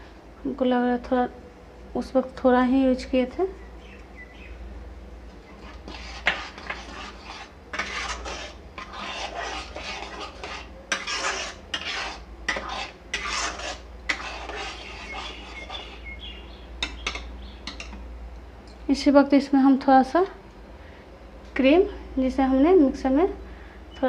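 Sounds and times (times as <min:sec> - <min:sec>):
ladle scraping pan: 0:05.5 - 0:16.1.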